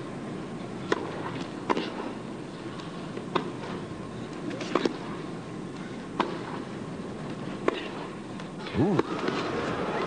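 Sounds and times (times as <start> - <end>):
arena background hum: 0.0 - 10.0
tennis ball racquet hits: 0.9 - 2.0, 2.8 - 3.8, 4.5 - 5.1, 6.2 - 6.6.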